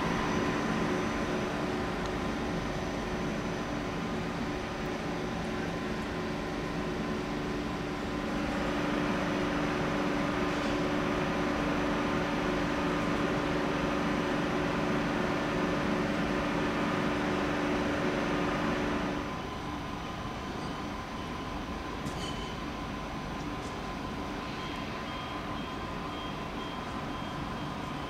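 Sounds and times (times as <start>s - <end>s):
electric train humming: 0.0s - 5.1s
electrical tones and cooling fans: 0.0s - 28.0s.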